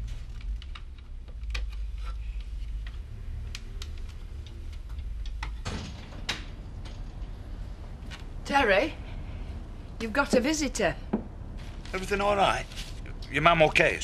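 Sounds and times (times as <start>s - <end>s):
newspaper rustling: 11.6s - 13.1s.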